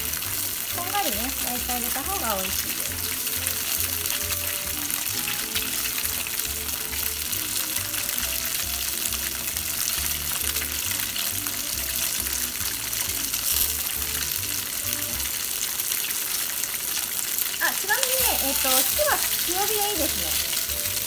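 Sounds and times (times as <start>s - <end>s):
background music with bass line: 0.0s - 15.4s
tofu sizzling in hot oil: 0.0s - 21.0s.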